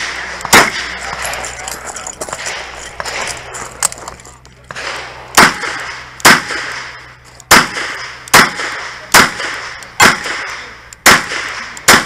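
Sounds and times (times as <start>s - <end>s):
gunshot echo: 0.0s - 1.3s, 4.7s - 12.0s.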